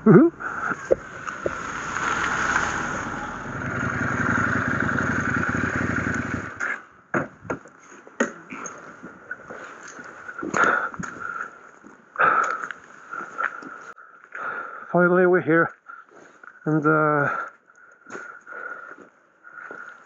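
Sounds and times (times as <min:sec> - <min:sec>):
motorcycle engine running: 0:00.1 - 0:07.4.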